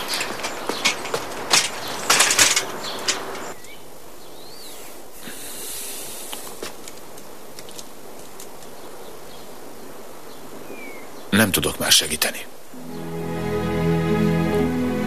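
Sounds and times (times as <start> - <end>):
running footsteps: 0.0 - 3.6
faint hiss: 3.7 - 15.0.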